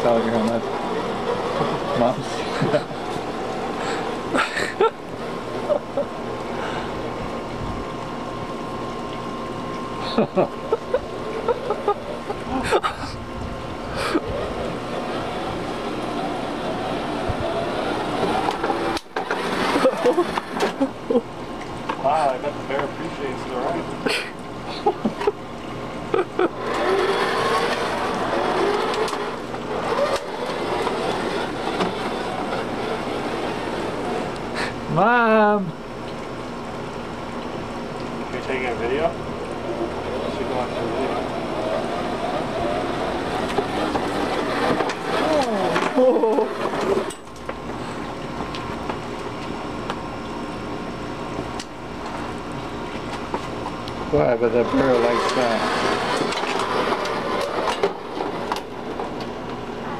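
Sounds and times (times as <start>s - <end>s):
plastic wheels rolling on concrete: 0.0s - 6.6s, 14.0s - 23.9s, 26.1s - 35.7s, 38.3s - 49.5s, 51.4s - 59.9s.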